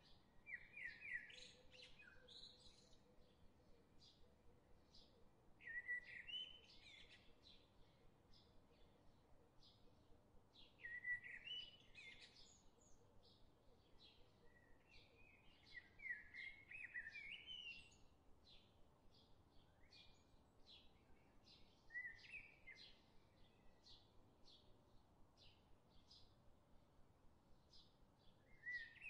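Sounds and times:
bird chirping: 0:27.7 - 0:29.0
bird warbling song: 0:28.4 - 0:29.0.

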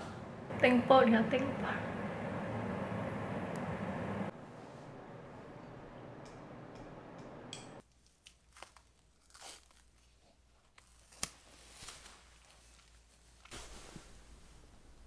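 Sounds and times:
room noise hiss: 0:00.0 - 0:07.8
bandage crackling and ripping: 0:07.9 - 0:13.5.

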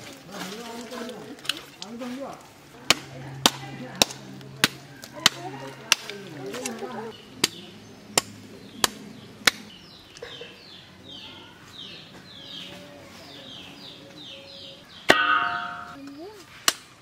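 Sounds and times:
bird chirping: 0:07.0 - 0:16.5.

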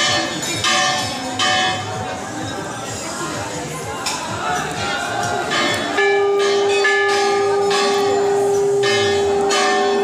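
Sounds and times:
bells clanging: 0:00.0 - 0:02.6, 0:04.9 - 0:10.0.

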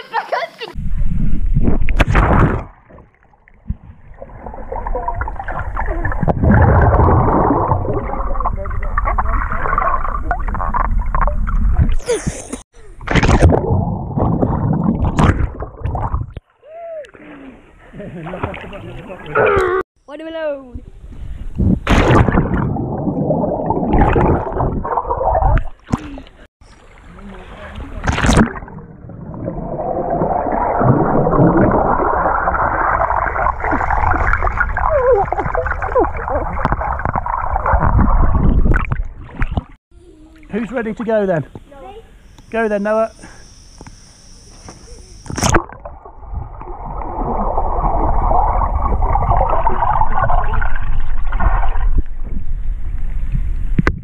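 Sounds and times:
underwater churning and gurgling: 0:01.5 - 0:12.0, 0:13.0 - 0:16.4, 0:21.9 - 0:25.8, 0:26.7 - 0:39.8, 0:45.3 - 0:52.8.

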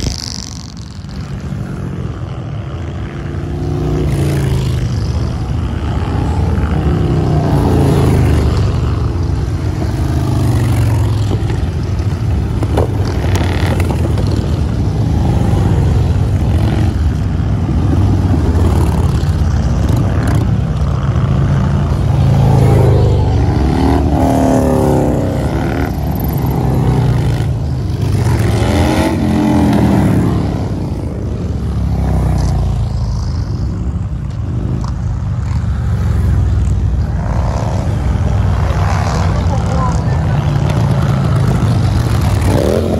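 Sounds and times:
motorcycles passing by: 0:00.0 - 0:42.9.

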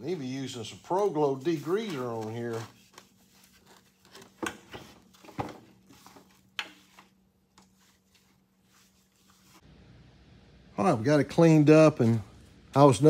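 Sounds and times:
rag wiping metal tank: 0:00.0 - 0:04.0.

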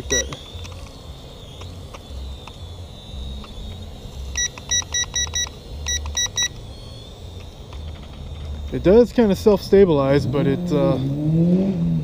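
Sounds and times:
remote control short beeps: 0:04.4 - 0:06.6.

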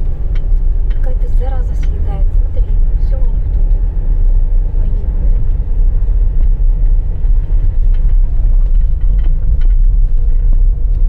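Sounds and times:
tyre and suspension rumble: 0:00.0 - 0:11.0
light knocks and rattles: 0:05.4 - 0:11.0.

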